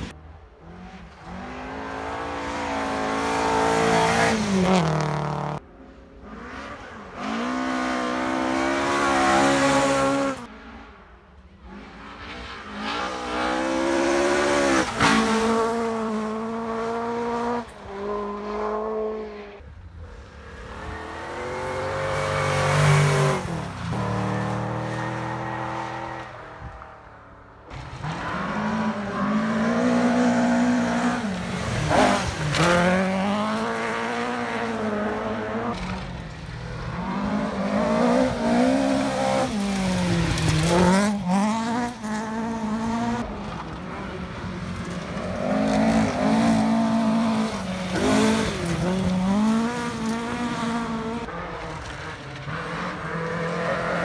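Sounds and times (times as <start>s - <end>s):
rally car engines accelerating: 0.0s - 26.8s, 27.7s - 54.0s.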